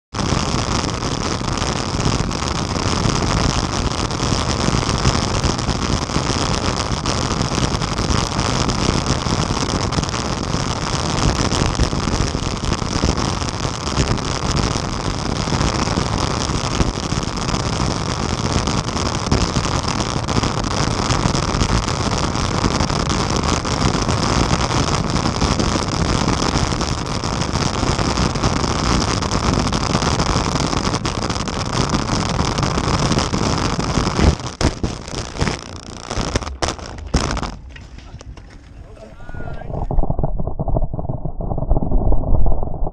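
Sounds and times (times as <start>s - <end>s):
bicycle tyre noise: 35.3s - 42.9s
wind rush: 35.7s - 42.9s.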